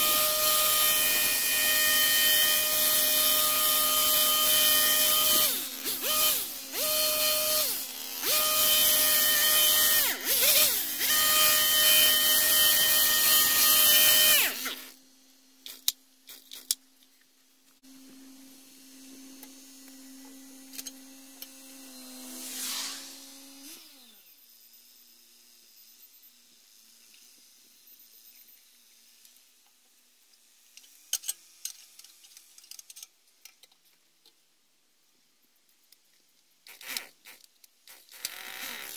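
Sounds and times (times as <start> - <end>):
hedge trimmer engine running: 0.0 - 14.9.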